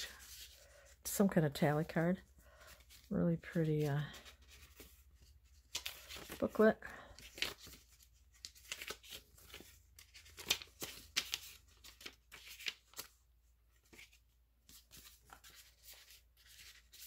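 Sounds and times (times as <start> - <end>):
paper pages rustling: 0.0 - 1.0, 2.2 - 17.0.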